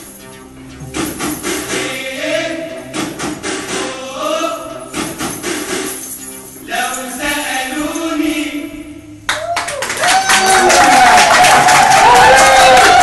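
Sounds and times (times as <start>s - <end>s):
percussion beat: 0.8s - 4.1s, 4.9s - 7.2s
pop song with singing: 1.4s - 9.1s
bright jingling: 5.9s - 8.2s.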